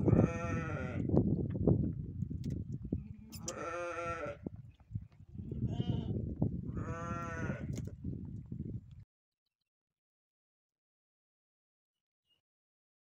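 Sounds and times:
young goat bleating: 0.0s - 1.1s, 3.0s - 4.5s, 5.4s - 7.8s.

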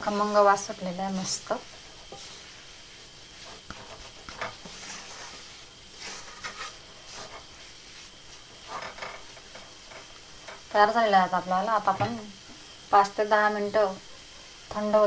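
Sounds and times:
wooden spatula scraping metal pan: 0.0s - 10.7s
faint hiss: 0.0s - 15.0s.

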